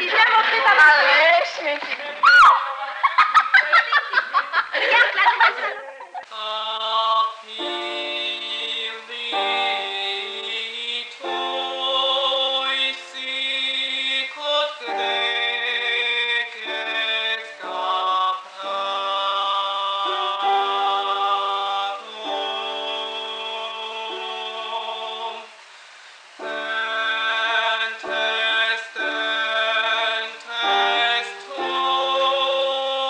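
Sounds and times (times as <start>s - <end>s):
voices laughing and calling out: 0.0s - 6.3s
music of held chords: 7.5s - 25.6s, 26.3s - 33.0s.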